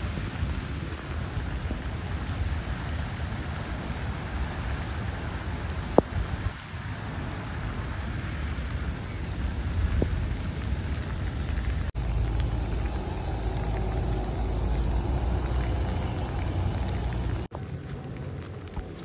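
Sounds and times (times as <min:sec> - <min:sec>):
rain falling on street: 0:00.0 - 0:19.0
tyres swishing on wet road: 0:00.0 - 0:19.0
low rumble: 0:09.3 - 0:19.0.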